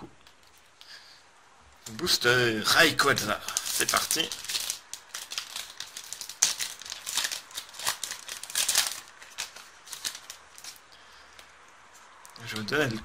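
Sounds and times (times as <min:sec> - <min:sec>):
foil wrapper crinkling: 0:02.8 - 0:10.8.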